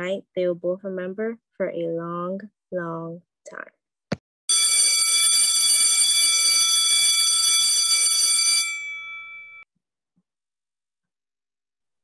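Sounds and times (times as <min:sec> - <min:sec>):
electric school bell ringing: 0:04.5 - 0:09.6.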